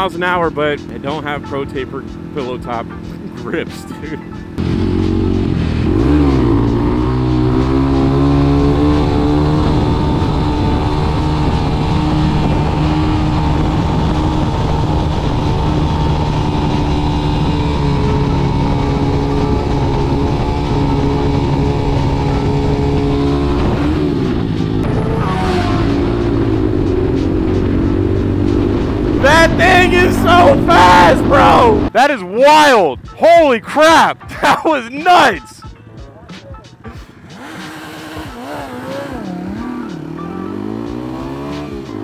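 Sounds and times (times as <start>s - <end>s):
motorcycle engine running: 0.0s - 31.9s, 37.0s - 42.0s
road noise: 0.0s - 42.0s
wind noise: 8.5s - 31.9s.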